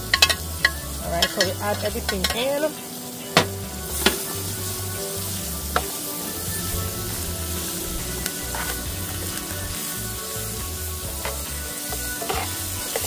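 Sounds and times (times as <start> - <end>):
vegetables sizzling in oil: 0.0 - 13.0
metal spoon clicking on pan: 0.1 - 2.4.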